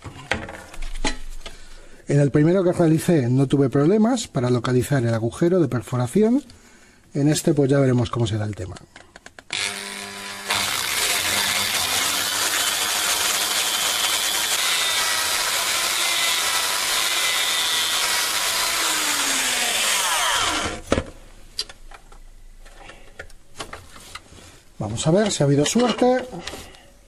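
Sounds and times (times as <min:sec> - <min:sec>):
hammer drill boring into wood: 0:09.5 - 0:20.8.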